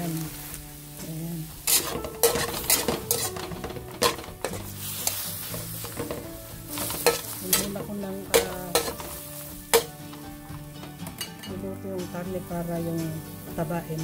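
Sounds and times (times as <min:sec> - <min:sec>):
pork sizzling in a wok: 0:00.0 - 0:11.5, 0:12.4 - 0:14.0
quiet background music: 0:00.0 - 0:14.0
metal spatula scraping pan: 0:01.6 - 0:11.5.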